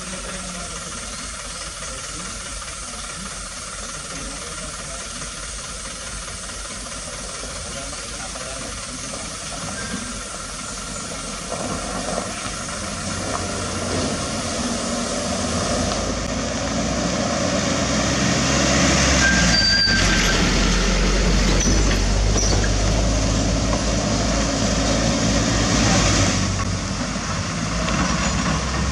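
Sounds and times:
diesel truck engine passing: 7.1s - 28.9s
brief high squeal: 19.2s - 20.6s.

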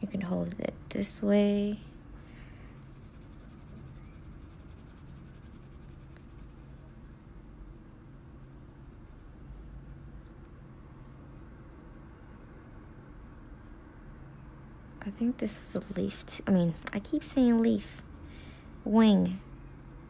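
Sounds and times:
coloured pencil scratching on card: 2.6s - 9.5s, 11.2s - 13.1s, 15.9s - 20.0s.

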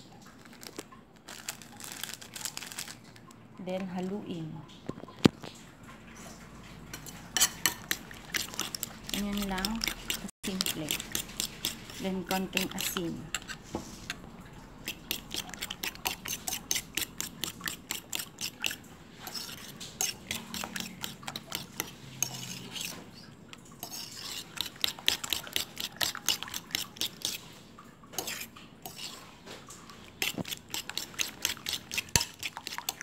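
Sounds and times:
fork beating eggs in bowl: 6.9s - 27.6s, 28.2s - 33.0s.

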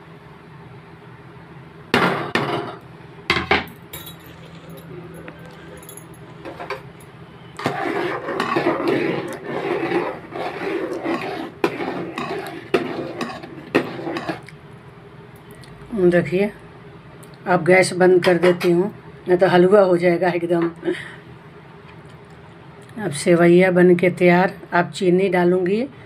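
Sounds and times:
stirring and scraping in pot: 7.5s - 14.5s.

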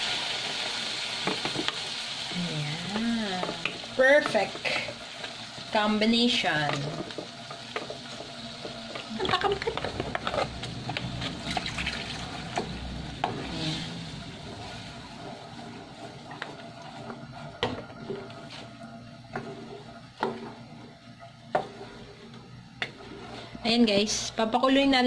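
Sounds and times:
spoon stirring thick sauce: 14.4s - 23.6s.

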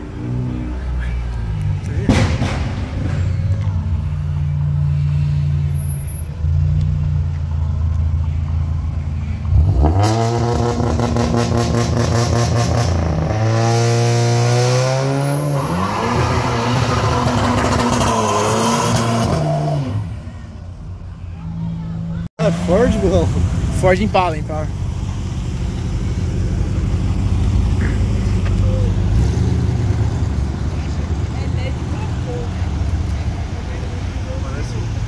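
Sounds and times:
car engine revving: 8.6s - 20.2s.

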